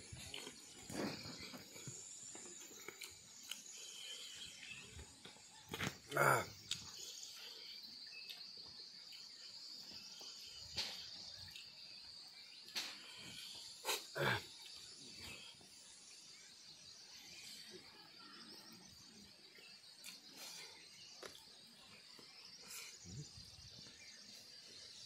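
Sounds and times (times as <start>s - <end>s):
field insects chirring: 0.0s - 25.0s
eating by hand clicks and smacks: 2.4s - 4.0s, 20.0s - 20.4s.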